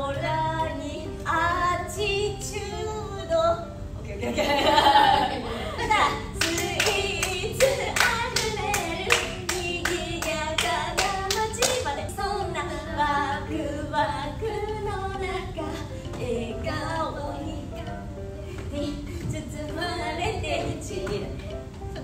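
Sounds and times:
women singing unaccompanied: 0.0 - 22.0
hands clapping a steady beat: 6.4 - 11.9.

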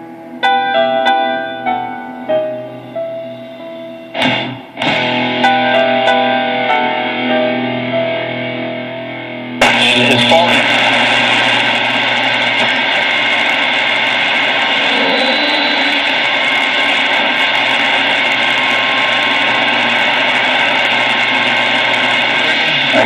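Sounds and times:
radio static hiss: 2.6 - 5.6, 9.6 - 23.0.

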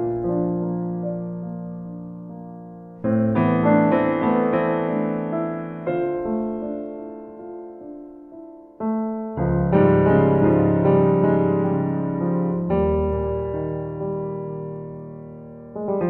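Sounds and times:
piano chords: 0.0 - 16.0.

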